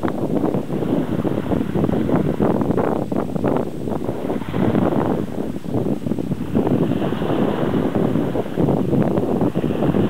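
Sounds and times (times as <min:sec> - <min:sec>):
wind buffeting microphone: 0:00.0 - 0:10.0
waves washing onto pebble shore: 0:06.3 - 0:08.7.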